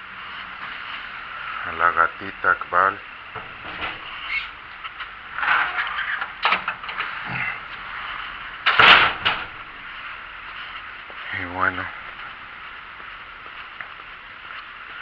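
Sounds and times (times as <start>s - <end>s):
handling knocks and rattles: 3.3s - 7.2s
metal clatter: 3.4s - 4.6s, 5.3s - 7.2s, 8.6s - 9.6s.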